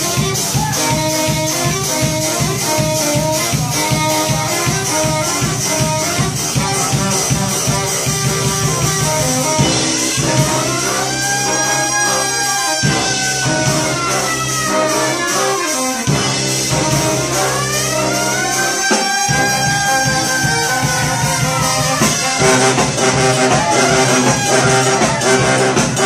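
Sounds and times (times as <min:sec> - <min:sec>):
brass street band playing jazz: 0:00.0 - 0:26.0
sliding horn line: 0:00.0 - 0:26.0.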